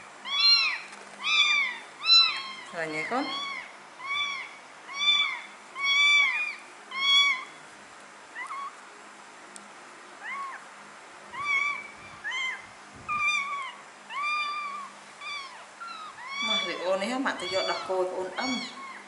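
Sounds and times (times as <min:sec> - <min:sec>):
kitten mewing: 0:00.3 - 0:07.6, 0:11.3 - 0:19.0.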